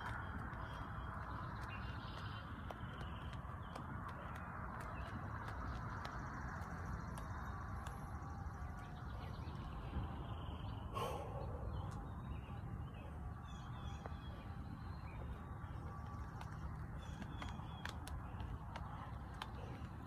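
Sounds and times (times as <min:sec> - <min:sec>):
steady low background noise: 0:00.0 - 0:20.0.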